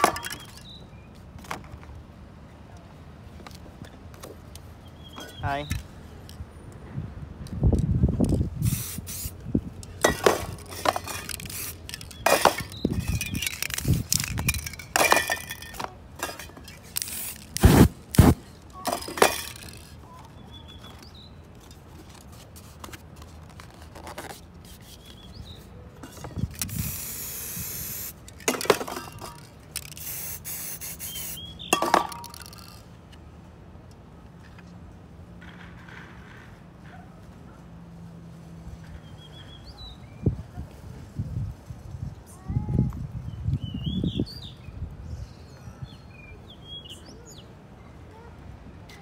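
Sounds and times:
aerosol spray paint hiss: 8.6s - 9.4s, 17.0s - 18.4s, 26.7s - 28.1s, 30.0s - 31.5s
tools clicking and scraping: 9.8s - 20.0s, 20.9s - 33.2s.

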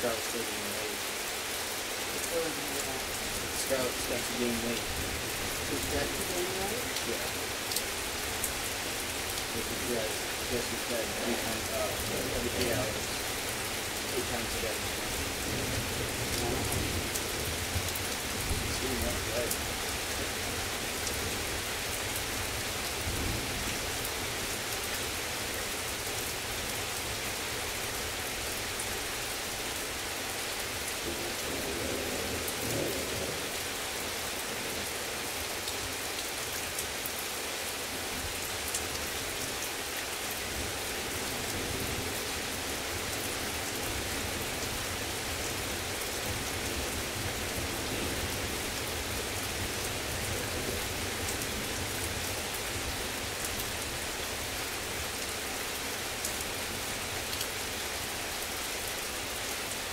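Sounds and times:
heavy rain: 0.0s - 59.9s
low rumble of thunder: 9.4s - 21.6s, 31.1s - 33.4s.

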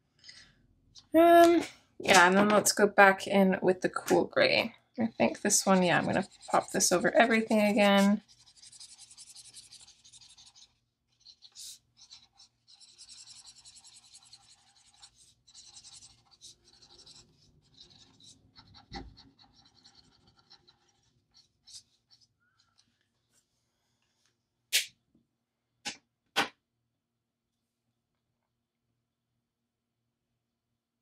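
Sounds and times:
marker scratching on paper: 5.0s - 22.9s.

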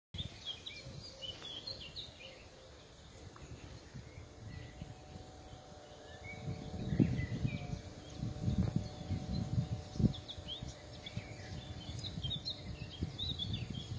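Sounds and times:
small birds chirping: 0.2s - 13.9s
wind rumble on microphone: 0.2s - 13.9s.

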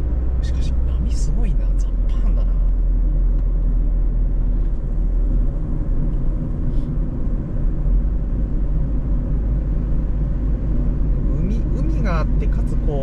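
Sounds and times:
car engine rumble: 0.0s - 13.0s
road noise: 0.0s - 13.0s.

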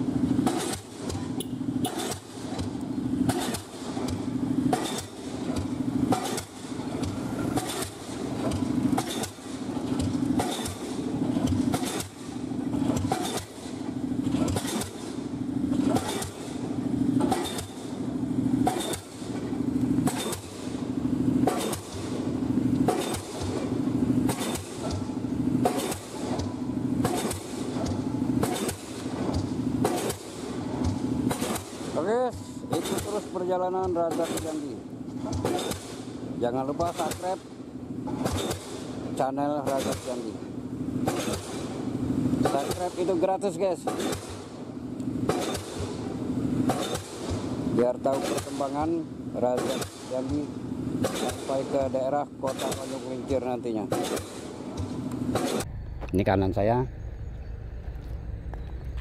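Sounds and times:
rig engine running: 0.0s - 59.0s
pile hammer striking: 0.4s - 13.8s, 14.4s - 15.2s, 15.8s - 16.6s, 17.2s - 17.9s, 18.6s - 19.2s, 20.0s - 20.8s, 21.4s - 22.2s, 22.8s - 37.5s, 38.1s - 38.9s, 39.6s - 40.3s, 41.0s - 41.7s, 42.4s - 43.2s, 43.8s - 44.5s, 45.2s - 46.0s, 46.6s - 47.5s, 48.1s - 55.7s.

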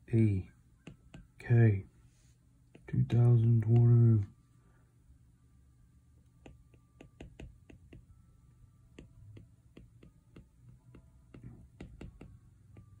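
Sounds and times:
stylus tapping on glass screen: 0.8s - 1.4s, 2.7s - 4.1s, 6.4s - 8.2s, 8.9s - 13.0s.

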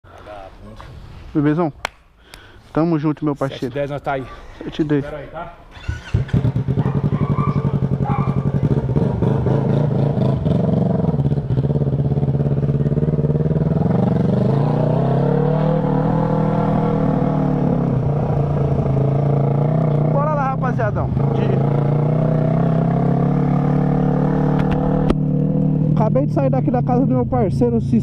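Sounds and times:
motorcycle engine revving: 5.7s - 28.0s.

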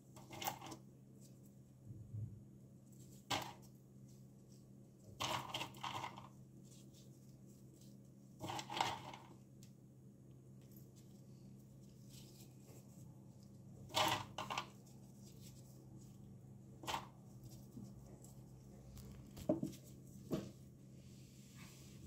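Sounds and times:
low steady hum: 0.0s - 22.0s
walnut shells rustling and clicking: 5.1s - 6.3s, 13.8s - 15.5s.

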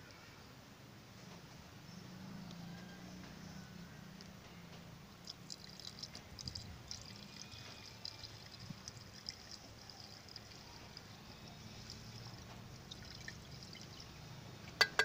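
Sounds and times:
liquid trickling and splashing: 5.2s - 14.8s.

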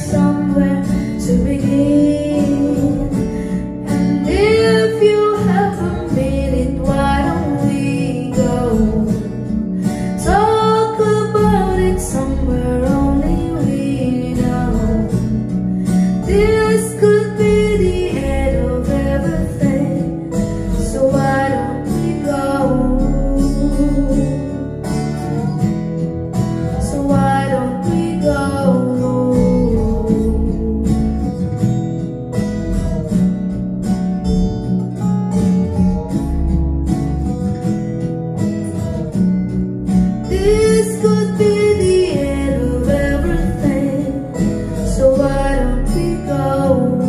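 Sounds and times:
woman singing into microphone: 0.0s - 25.4s, 26.5s - 31.4s, 40.2s - 47.0s
acoustic guitar: 0.0s - 47.0s.

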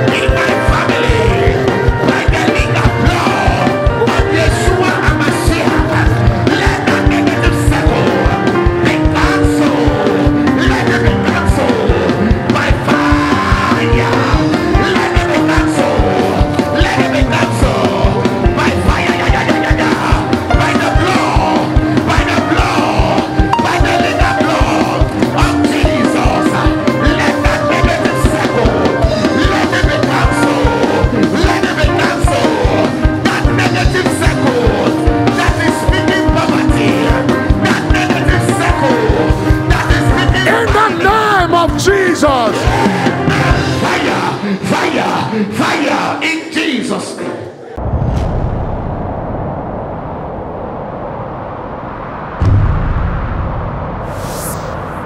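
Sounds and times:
people singing: 0.0s - 41.4s, 42.3s - 46.4s
keyboard chords: 0.0s - 43.8s
guitar: 0.0s - 46.0s
congregation praying aloud: 8.9s - 47.8s.

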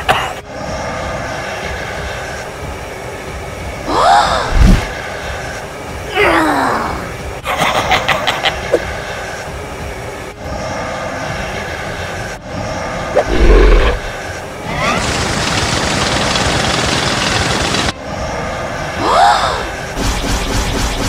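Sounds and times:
rushing noise: 0.0s - 21.0s
laser beam hiss: 10.6s - 21.0s.

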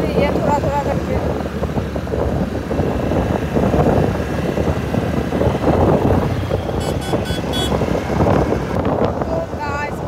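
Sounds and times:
short horn beeps: 6.8s - 7.8s.

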